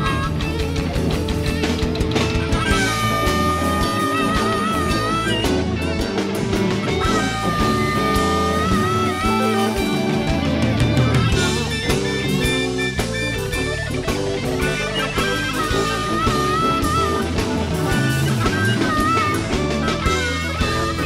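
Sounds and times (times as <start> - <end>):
blues band playing: 0.0 - 21.0
guitar lead bending notes: 0.0 - 21.0.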